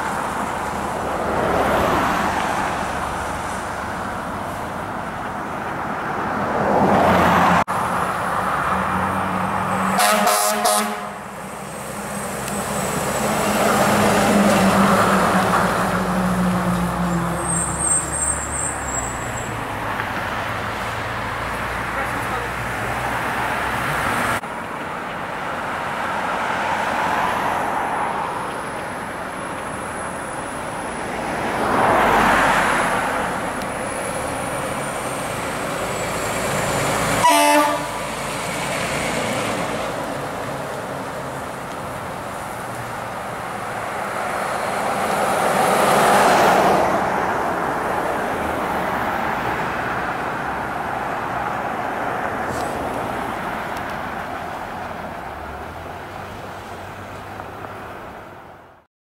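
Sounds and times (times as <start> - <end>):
fire trucks driving past: 0.0 - 58.8
air horn blast: 9.9 - 11.2, 37.2 - 38.0.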